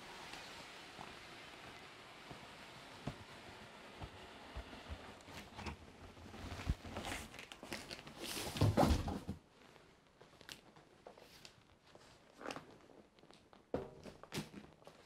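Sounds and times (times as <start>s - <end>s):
cardboard box knocks and scuffs: 8.4s - 9.4s.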